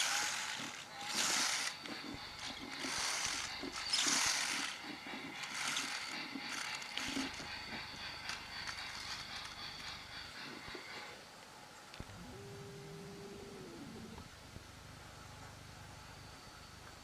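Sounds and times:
toy spring motor whirring: 0:00.0 - 0:11.1.

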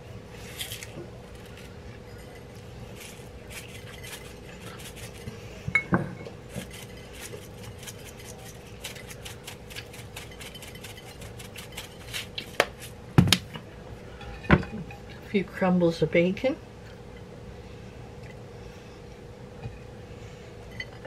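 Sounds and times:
seasoning rattling in shaker jar: 0:00.4 - 0:05.3, 0:06.5 - 0:12.8.

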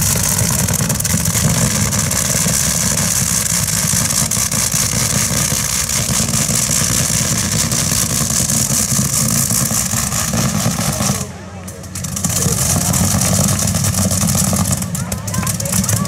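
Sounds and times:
big engine running at low revs: 0:00.0 - 0:16.0.

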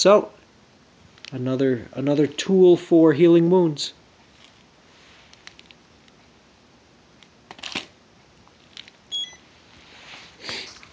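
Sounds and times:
brief high beep: 0:09.1 - 0:09.4.

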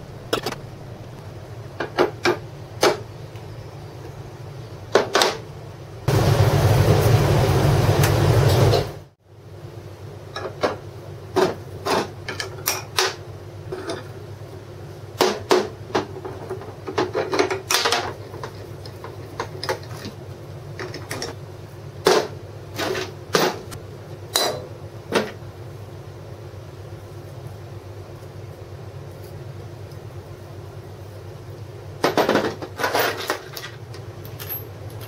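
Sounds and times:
steady low hum: 0:00.0 - 0:35.0
wooden and metal parts handled: 0:32.1 - 0:35.0.

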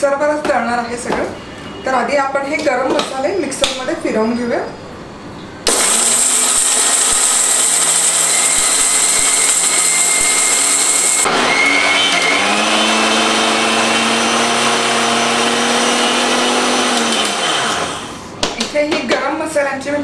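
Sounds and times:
mixer grinder grinding spices: 0:05.7 - 0:18.2.

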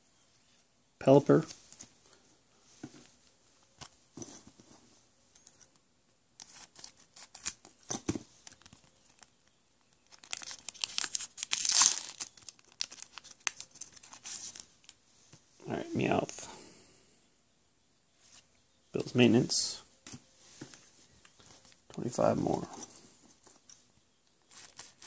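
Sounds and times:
wrapper crinkling and tearing: 0:06.4 - 0:07.7, 0:10.0 - 0:15.0.

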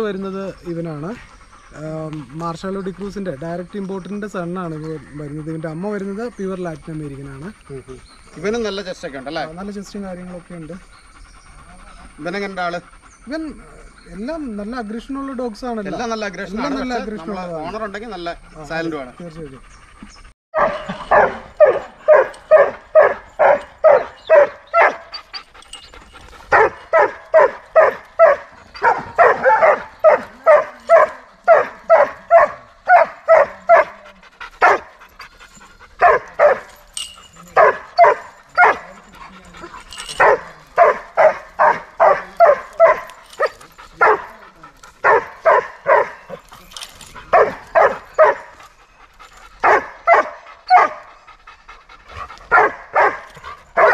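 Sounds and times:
dog barking rapidly: 0:20.6 - 0:25.2, 0:26.5 - 0:34.0, 0:34.6 - 0:35.0, 0:36.0 - 0:36.7, 0:37.6 - 0:39.0, 0:40.1 - 0:44.4, 0:45.0 - 0:46.4, 0:47.2 - 0:48.6, 0:49.6 - 0:51.1, 0:52.5 - 0:53.9.

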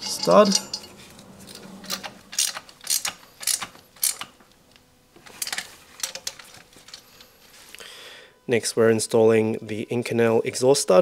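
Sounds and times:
metal washers clinking: 0:00.0 - 0:04.2, 0:05.4 - 0:07.2.

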